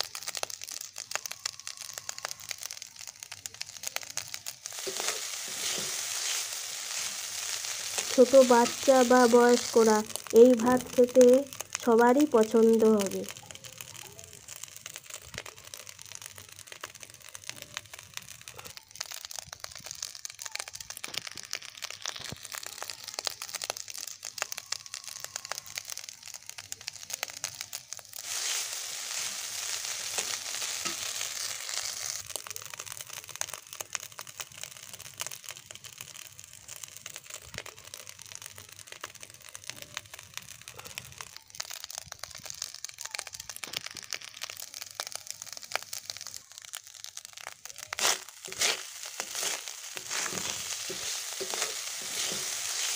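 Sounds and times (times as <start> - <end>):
rice frying in a pan: 0.0 - 52.9
spatula scraping a pan: 4.7 - 8.8, 47.9 - 52.9.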